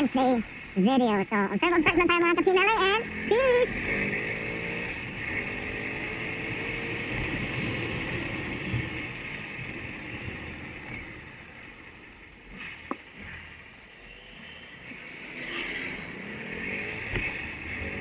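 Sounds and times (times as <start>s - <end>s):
road and wind noise: 0.0s - 18.0s
motorcycle engine running: 1.6s - 13.5s, 14.9s - 18.0s.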